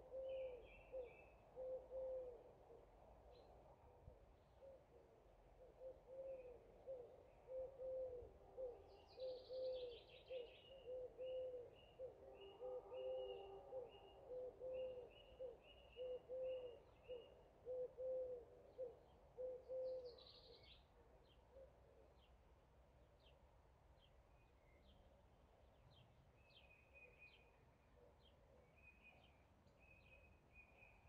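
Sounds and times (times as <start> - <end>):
low hooting bird call: 5.8 - 20.2.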